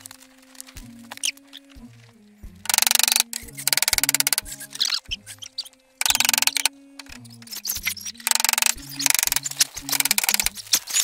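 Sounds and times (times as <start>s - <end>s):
held bass notes: 0.0s - 10.8s
fast rattling beat: 2.5s - 11.0s.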